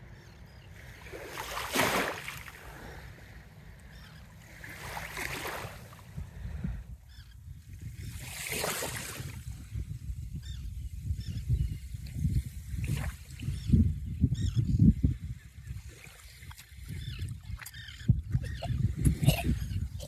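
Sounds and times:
low wind rumble on microphone: 0:05.6 - 0:20.0.

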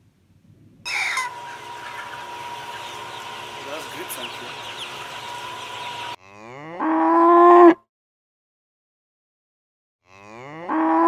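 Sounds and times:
steady high hum: 0:00.9 - 0:06.2
cow mooing: 0:06.2 - 0:07.8, 0:10.0 - 0:11.0.

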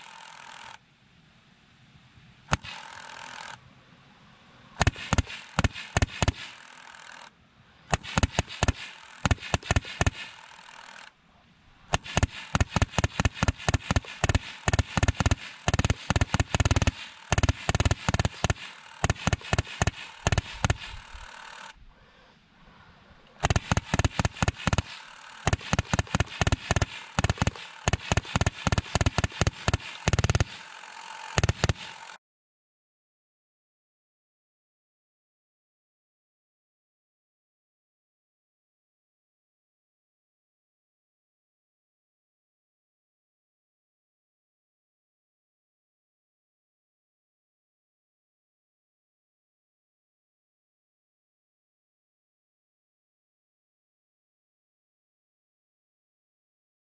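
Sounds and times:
steady whir: 0:02.5 - 0:32.2
auto cannon firing: 0:04.8 - 0:06.8, 0:07.9 - 0:10.6, 0:11.8 - 0:21.6, 0:23.4 - 0:32.2.

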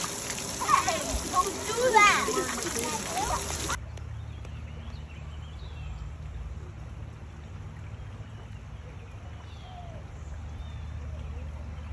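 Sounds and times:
creek water flowing over rocks: 0:00.0 - 0:03.8.

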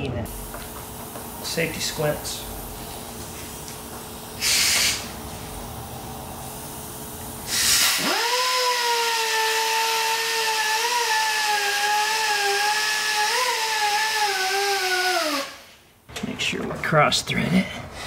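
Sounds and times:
air hiss: 0:00.3 - 0:15.9
pneumatic tool whining: 0:04.3 - 0:05.2, 0:07.4 - 0:15.8.

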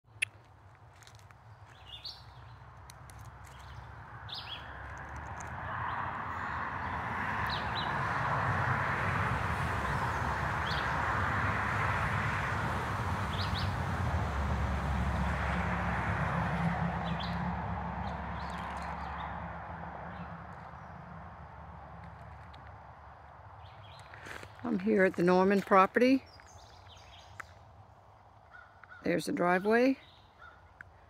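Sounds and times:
birds chirping: 0:01.4 - 0:08.3, 0:10.6 - 0:11.0, 0:13.3 - 0:13.8, 0:17.0 - 0:19.4, 0:23.5 - 0:31.0.

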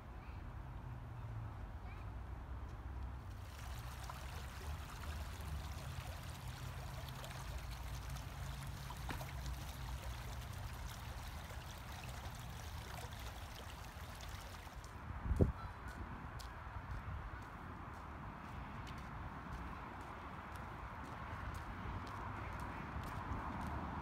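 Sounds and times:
stream running over rocks: 0:03.2 - 0:15.0.

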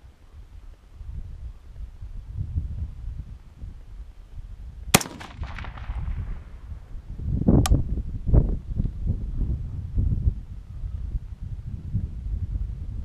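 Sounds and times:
rifle shot with echo: 0:04.9 - 0:06.7
faint sharp click: 0:07.6 - 0:07.8.

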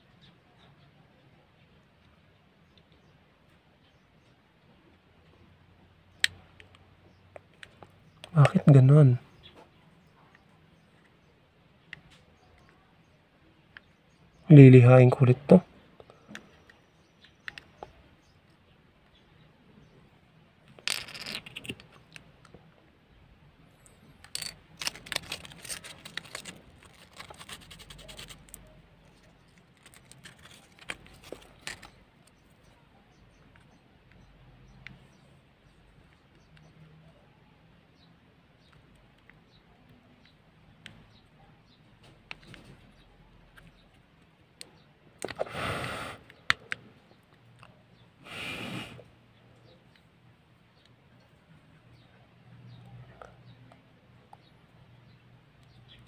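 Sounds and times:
sandpaper scratching plastic: 0:24.4 - 0:31.9.

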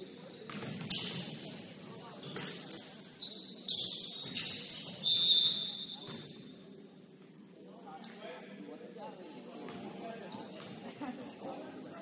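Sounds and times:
basketball shoes squeaking: 0:00.0 - 0:06.9
murmur of voices: 0:00.0 - 0:12.0.

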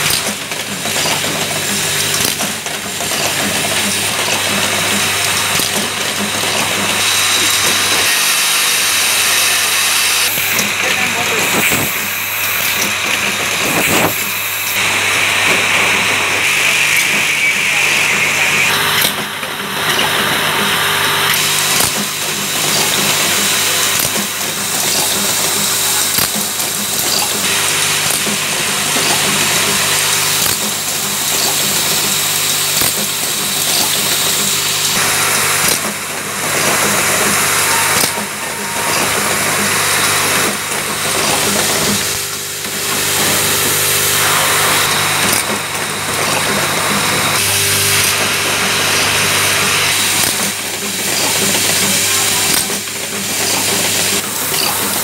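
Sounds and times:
bowl feeders humming: 0:21.1 - 0:55.0.

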